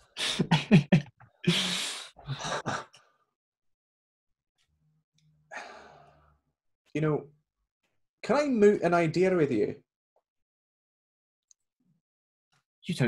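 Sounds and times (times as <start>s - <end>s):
man sighing: 0.2s - 2.8s.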